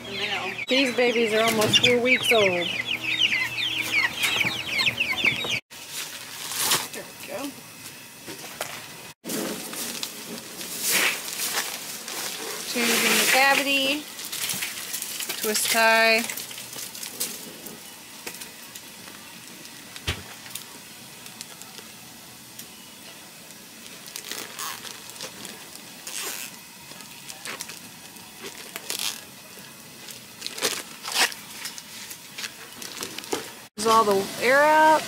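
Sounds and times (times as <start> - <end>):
plastic bag crinkling: 23.8 - 33.7.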